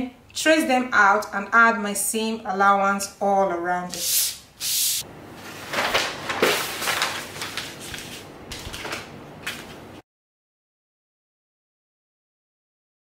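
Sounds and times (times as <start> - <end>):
paper rustling and crinkling: 5.4 - 9.9.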